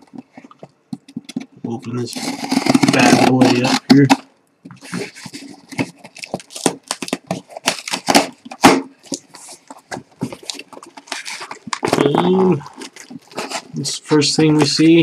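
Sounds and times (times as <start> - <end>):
cardboard flaps scraping and crinkling: 2.0 - 4.2, 4.8 - 15.0
packing tape tearing: 2.1 - 13.8.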